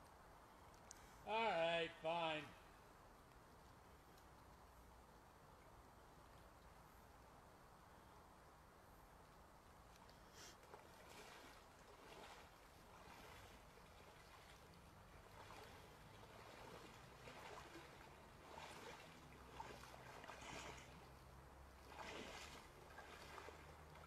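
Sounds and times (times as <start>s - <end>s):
faint water sloshing and splashing: 2.6s - 24.0s.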